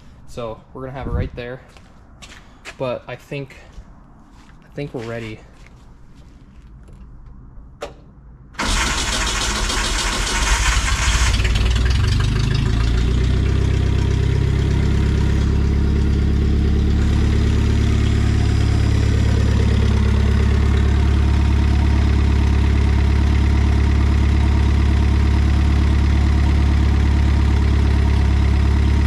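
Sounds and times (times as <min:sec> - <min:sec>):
truck engine starting and idling: 0:06.9 - 0:29.0.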